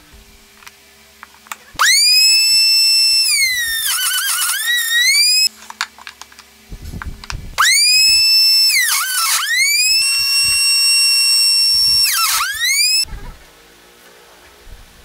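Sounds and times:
router whining at high speed: 1.8 - 5.5, 7.6 - 13.1.

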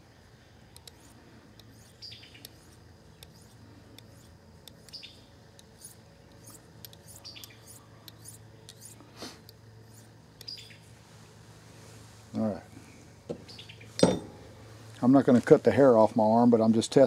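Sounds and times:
knife blade scraping on steel: 5.7 - 9.0.

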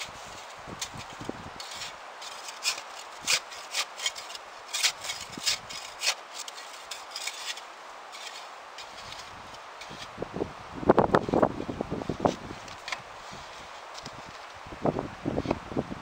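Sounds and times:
shovel scraping snow and ice: 0.0 - 10.1, 12.1 - 14.6.

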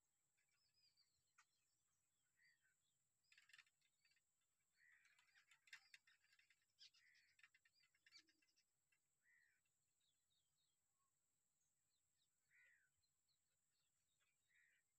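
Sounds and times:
birds chattering harshly: 2.4 - 10.2, 12.5 - 13.0, 14.1 - 14.9.

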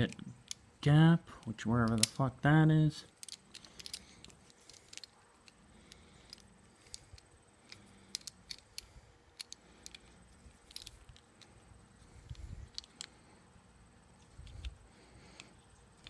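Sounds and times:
small metal parts clicking: 0.0 - 0.7, 1.8 - 2.3, 3.0 - 13.3.

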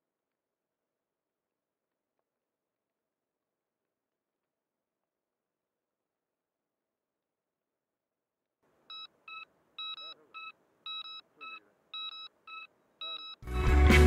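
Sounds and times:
high alarm beeps: 8.9 - 13.4.

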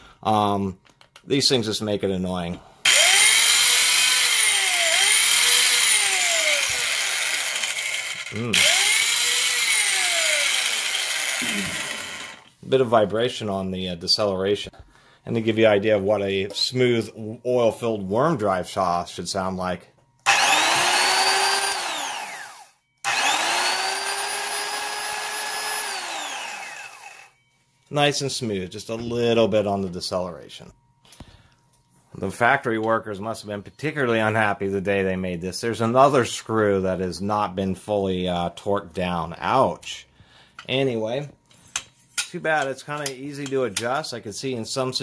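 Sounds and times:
circular saw running: 2.9 - 12.5, 20.3 - 27.4.

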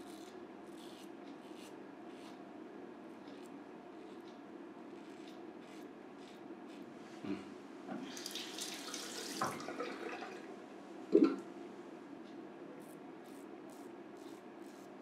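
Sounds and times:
razor scraping stubble: 0.0 - 2.4, 3.1 - 6.9, 12.8 - 15.0
water running and splashing in sink: 8.0 - 10.5.

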